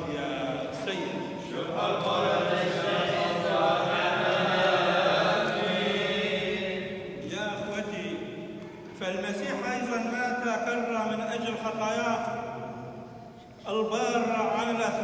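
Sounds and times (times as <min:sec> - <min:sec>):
man chanting into a microphone: 0:00.0 - 0:04.1, 0:13.6 - 0:15.0.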